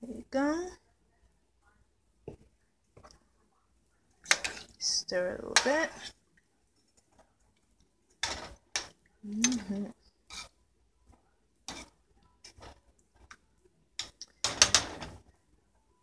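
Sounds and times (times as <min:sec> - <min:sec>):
spoon scraping a metal pot: 0:04.2 - 0:06.2, 0:08.2 - 0:10.6, 0:11.7 - 0:12.8.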